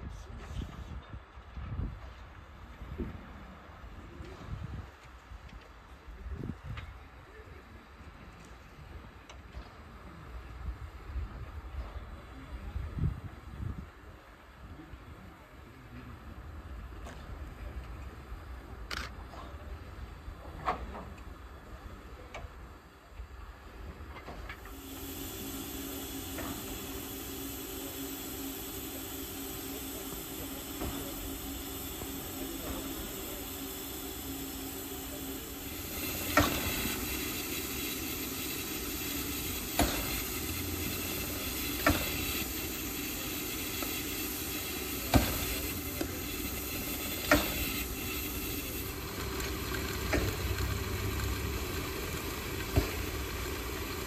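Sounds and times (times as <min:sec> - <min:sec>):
steam hissing: 0:24.5 - 0:54.0.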